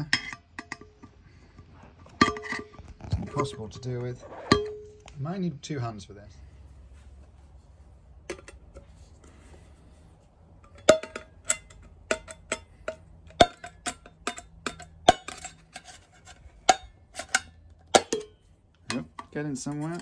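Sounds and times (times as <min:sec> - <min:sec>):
tool scraping metal tin: 0:15.1 - 0:18.3.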